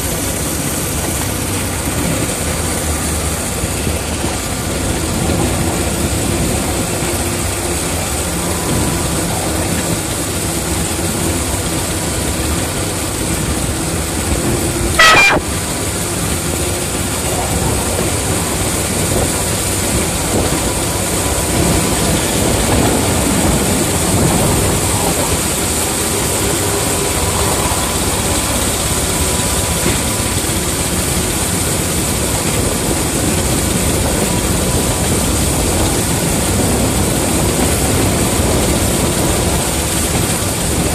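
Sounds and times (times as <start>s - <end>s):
miniature railway locomotive running: 0.0s - 40.9s
sharp high-pitched sound: 15.0s - 15.5s.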